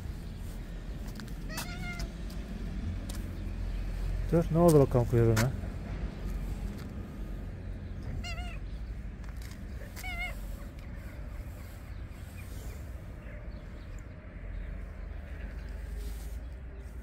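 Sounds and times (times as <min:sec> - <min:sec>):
cat meowing: 0:01.5 - 0:02.2, 0:08.0 - 0:08.8, 0:09.8 - 0:10.7.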